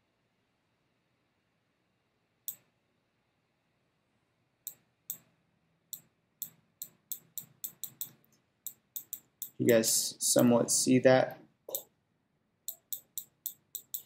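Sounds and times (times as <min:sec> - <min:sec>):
computer mouse clicking: 0:02.5 - 0:02.7, 0:05.9 - 0:09.6, 0:12.7 - 0:14.0.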